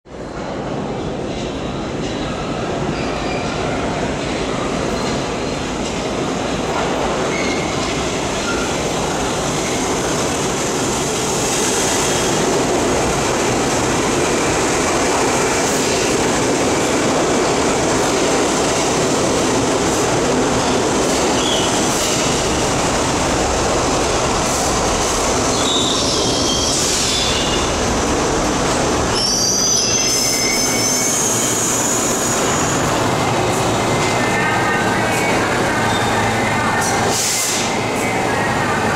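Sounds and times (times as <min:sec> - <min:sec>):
subway train rumbling: 0:00.0 - 0:38.9
high-pitched brake squealing: 0:07.2 - 0:08.7, 0:25.5 - 0:27.7, 0:29.1 - 0:32.9.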